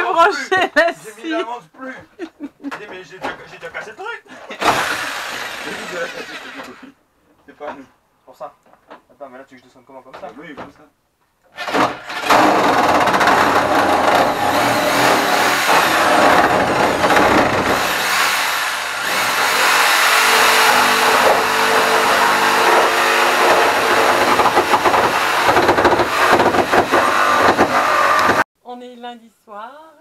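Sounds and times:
electric jigsaw sawing: 4.6s - 6.8s, 11.6s - 28.5s.

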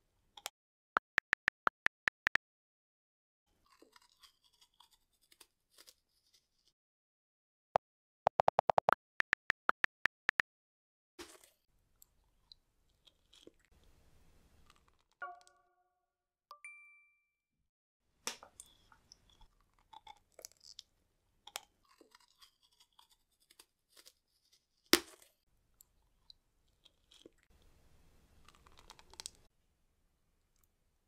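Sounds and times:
sticky chewing and crunching: 21.5s - 25.3s, 28.4s - 29.5s.

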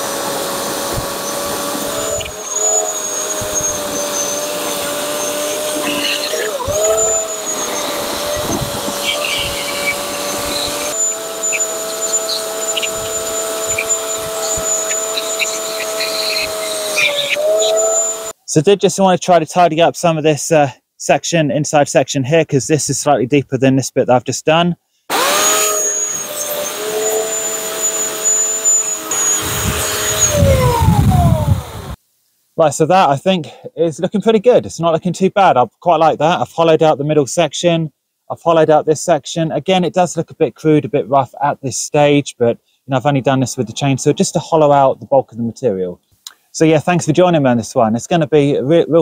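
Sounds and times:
electric chainsaw cutting wood: 0.0s - 18.4s, 25.1s - 32.0s.

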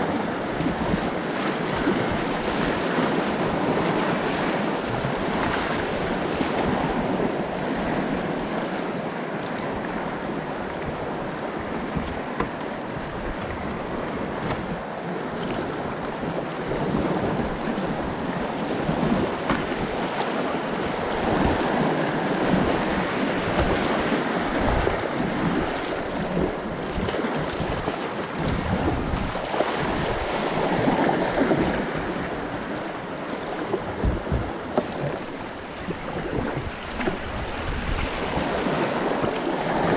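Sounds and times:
whitewater rushing and splashing: 0.0s - 39.9s
wind buffeting microphone: 0.0s - 39.9s.

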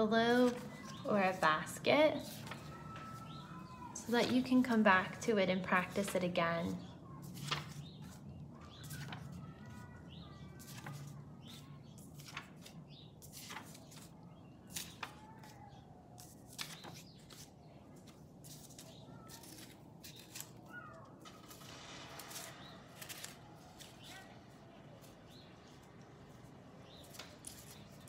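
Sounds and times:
paper cards tapping and sliding: 16.2s - 20.6s, 21.2s - 28.0s.

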